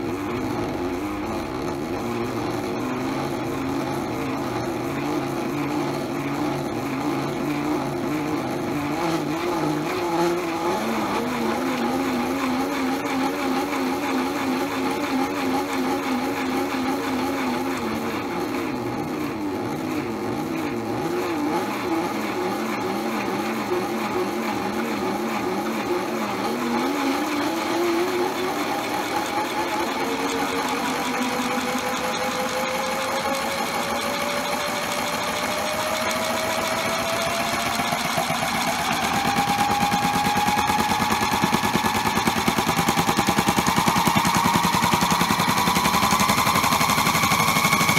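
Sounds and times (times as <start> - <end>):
toy washing machine motor: 24.4 - 47.9.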